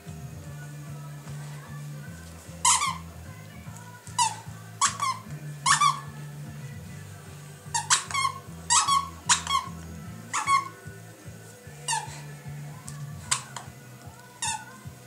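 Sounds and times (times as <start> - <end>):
squeaky toy squeaking: 2.6 - 3.1, 4.1 - 6.1, 7.7 - 10.9, 11.8 - 12.3, 13.2 - 13.7, 14.4 - 14.8.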